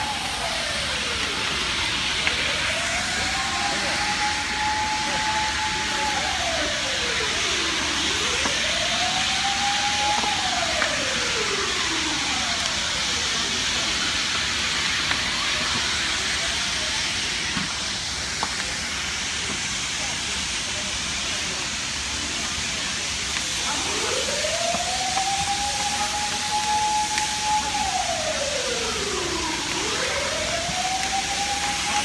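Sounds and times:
loud rushing hiss: 0.0s - 24.3s
emergency vehicle siren wailing: 0.0s - 32.0s.

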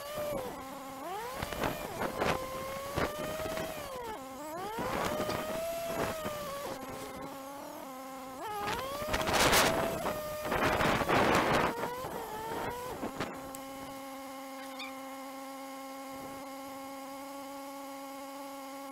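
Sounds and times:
motorcycle engine: 0.0s - 18.9s
wind rushing on microphone: 1.4s - 3.9s, 8.6s - 13.4s.

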